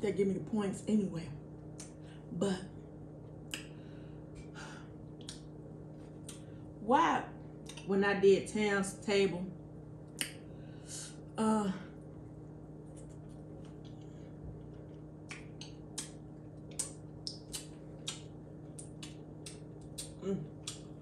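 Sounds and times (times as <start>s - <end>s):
low electrical hum: 0.0s - 21.0s
mouth chewing smacks: 14.6s - 20.9s.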